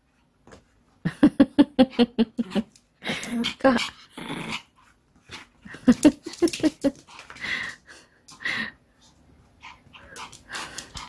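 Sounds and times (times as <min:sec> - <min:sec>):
person laughing: 0:05.7 - 0:07.0
breathy huffs: 0:07.3 - 0:08.8.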